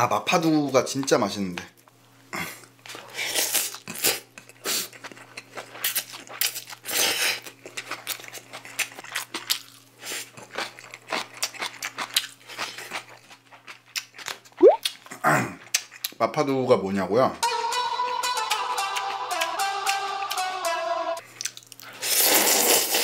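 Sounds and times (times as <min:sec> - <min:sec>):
wet chewing and smacking: 0:02.9 - 0:16.2, 0:21.3 - 0:22.0
slurping noodles: 0:21.9 - 0:23.0.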